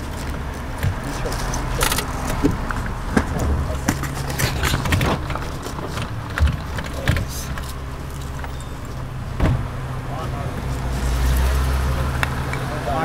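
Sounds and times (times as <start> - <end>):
vehicle engine humming: 0.0 - 13.0
knocks and clicks: 0.8 - 8.6.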